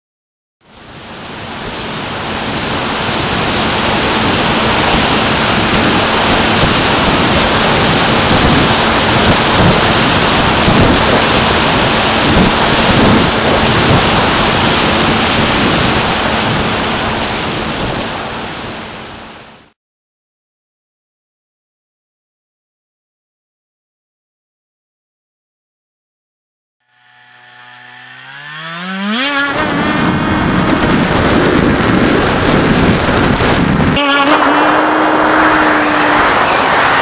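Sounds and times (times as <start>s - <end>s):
wind rushing over microphone: 0.8s - 19.6s, 28.9s - 37.0s
electric motor and propeller hum: 1.1s - 19.3s, 26.8s - 33.6s.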